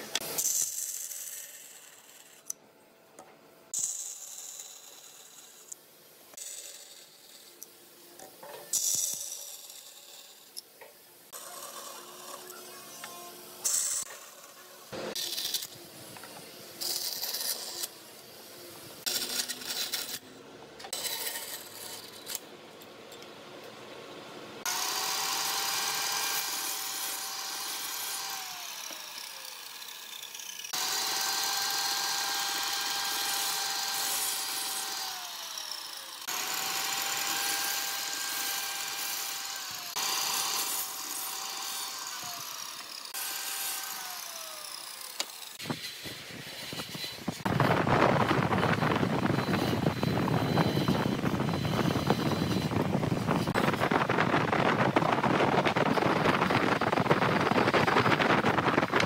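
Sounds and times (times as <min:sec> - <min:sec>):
bandsaw cutting wood: 0:11.3 - 0:18.0, 0:19.0 - 0:20.3, 0:20.9 - 0:22.4, 0:24.6 - 0:59.0
miter saw motor whine: 0:11.4 - 0:18.0, 0:24.6 - 0:59.0.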